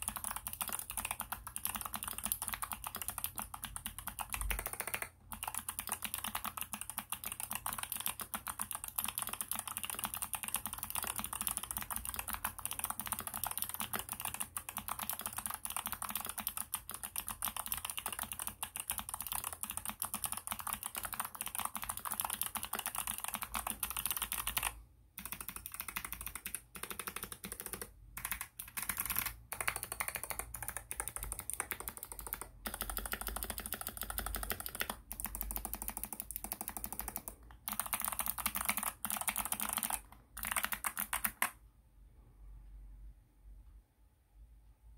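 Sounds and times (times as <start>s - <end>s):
clicky mechanical keyboard typing: 0.0s - 41.6s.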